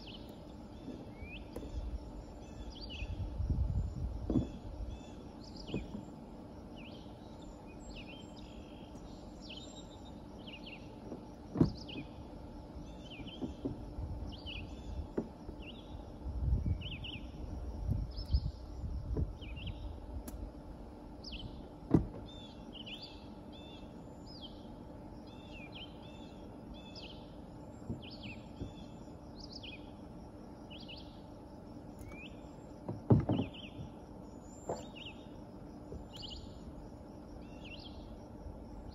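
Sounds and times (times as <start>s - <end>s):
small birds chirping and singing: 0.0s - 36.8s, 37.4s - 38.9s
faint outdoor background: 0.0s - 38.9s
sharp knocks: 32.9s - 33.5s.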